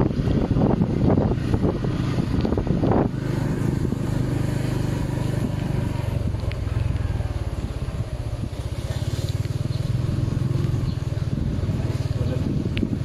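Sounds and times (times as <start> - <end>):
motorcycle engine running: 0.0 - 13.0
wind buffeting microphone: 0.0 - 13.0.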